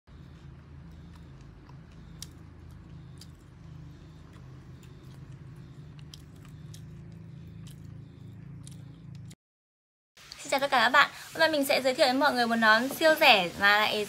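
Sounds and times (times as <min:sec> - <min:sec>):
steady low hum: 0:00.1 - 0:09.4
person biting and chewing: 0:00.4 - 0:09.4.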